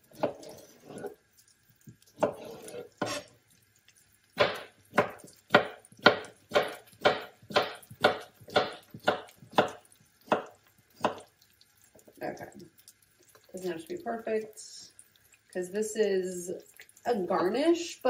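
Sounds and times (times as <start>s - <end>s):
knife chopping on plastic board: 0.1s - 0.6s, 2.2s - 3.2s, 4.4s - 11.2s.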